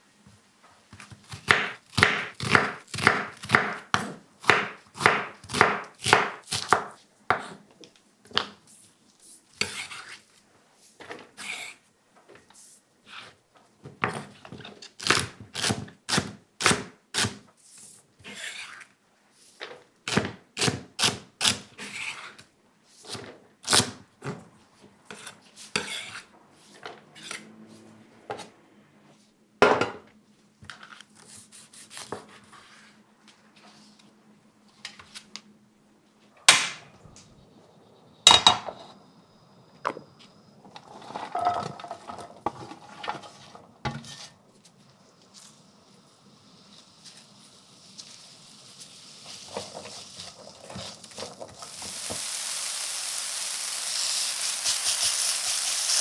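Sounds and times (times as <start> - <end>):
vegetables sliding into frying pan: 40.8 - 44.4, 46.6 - 56.0.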